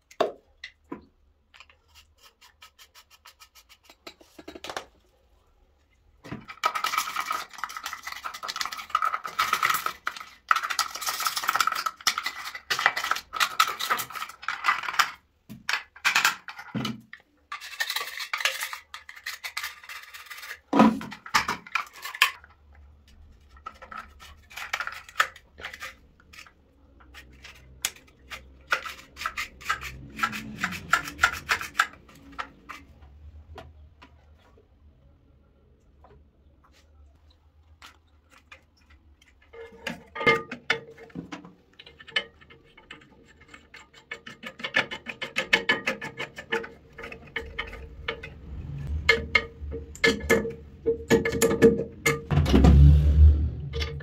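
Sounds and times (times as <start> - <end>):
toilet cistern parts clattering: 3.7 - 4.9, 6.3 - 22.6, 23.4 - 33.0, 38.4 - 52.4, 53.7 - 54.0.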